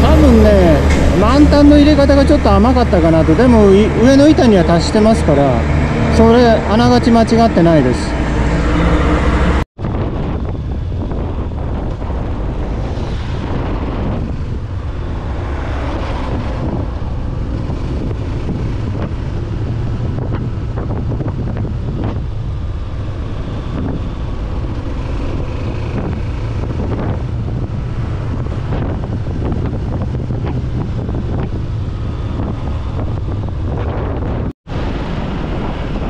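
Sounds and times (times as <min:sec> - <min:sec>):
wind buffeting microphone: 0:07.8 - 0:36.0.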